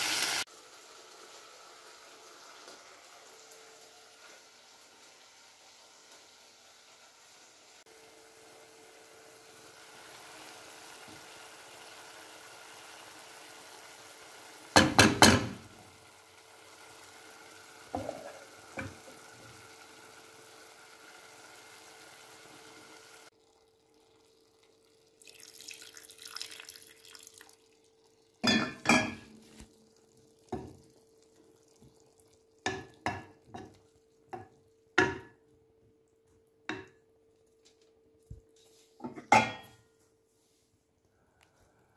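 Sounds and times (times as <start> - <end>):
steady hiss from pot: 0.0 - 35.4
wooden spoon knocking against pot: 14.8 - 15.6, 34.3 - 35.4.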